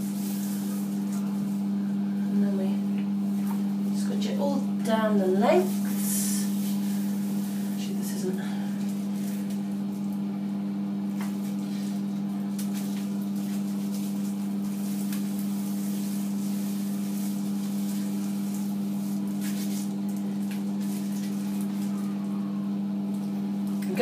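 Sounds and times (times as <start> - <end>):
low electrical hum: 0.0 - 24.0
gloved hands squelching in hair: 5.7 - 10.2, 11.2 - 22.1.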